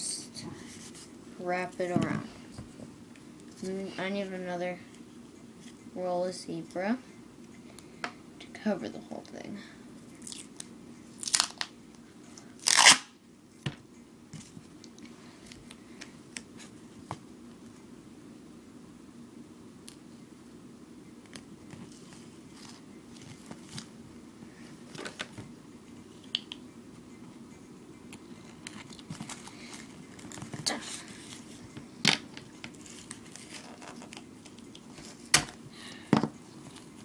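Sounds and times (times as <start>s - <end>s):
duct tape crinkling and rustling: 10.2s - 11.7s, 12.6s - 13.1s, 21.3s - 23.9s, 28.6s - 35.6s.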